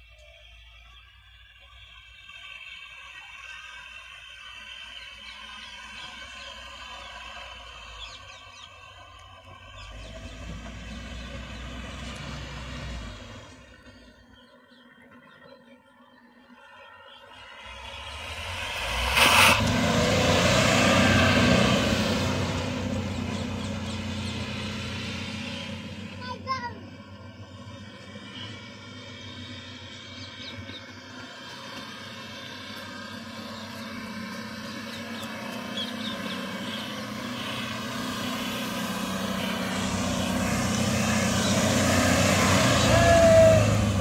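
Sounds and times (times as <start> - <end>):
diesel engine revving: 0.0 - 14.3, 16.7 - 44.0
wheels spinning in dirt: 0.0 - 15.7, 27.0 - 44.0.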